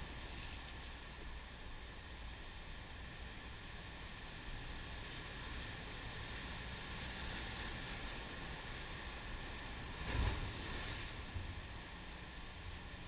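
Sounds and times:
wind rumble on microphone: 0.0 - 2.1, 3.0 - 13.0
ocean surf breaking on rocks: 4.3 - 11.7.

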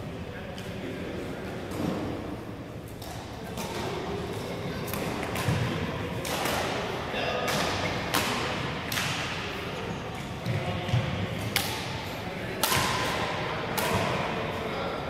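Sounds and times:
racket hitting shuttlecock: 4.9 - 9.4, 11.0 - 12.0, 12.6 - 14.3.

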